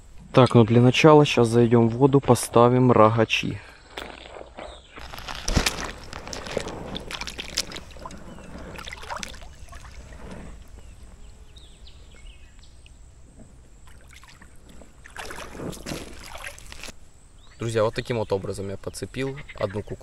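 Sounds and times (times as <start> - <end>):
wading through shallow water: 4.1 - 11.0, 13.7 - 17.0.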